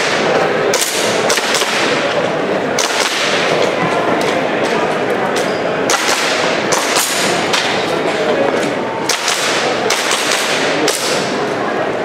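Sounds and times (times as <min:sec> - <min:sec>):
airsoft pistol shots: 0:00.0 - 0:02.0, 0:02.8 - 0:03.5, 0:05.9 - 0:07.7, 0:09.1 - 0:11.3
din of a large hall: 0:00.0 - 0:12.0.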